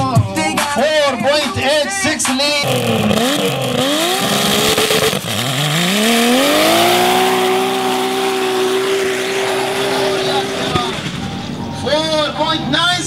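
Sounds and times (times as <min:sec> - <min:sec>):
truck engine revving at full throttle: 0:02.6 - 0:13.0.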